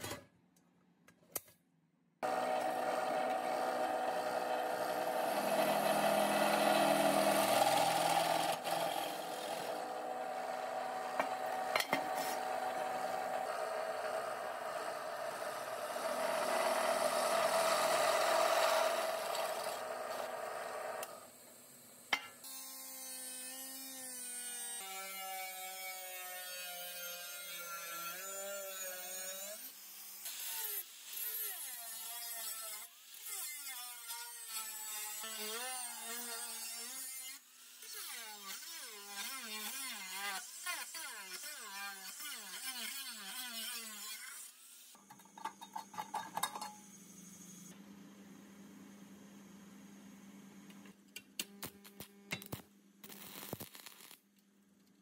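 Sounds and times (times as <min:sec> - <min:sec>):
drill press boring into steel: 0:02.2 - 0:21.2.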